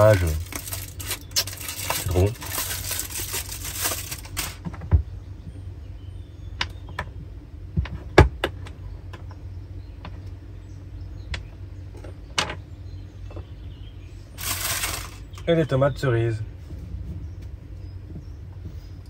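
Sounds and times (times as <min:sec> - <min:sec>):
aluminium foil crinkling: 0:00.0 - 0:04.6, 0:14.4 - 0:15.3.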